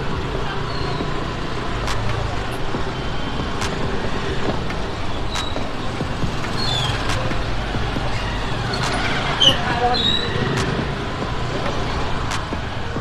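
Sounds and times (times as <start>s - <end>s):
motor scooter engine running: 0.0s - 13.0s
street noise: 0.0s - 13.0s
sharp clicks: 1.8s - 2.7s.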